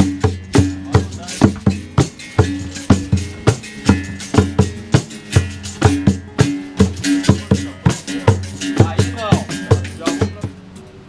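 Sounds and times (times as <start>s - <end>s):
sharp drum knocking strokes: 0.0s - 10.7s
deep hand drum beats: 0.0s - 10.8s.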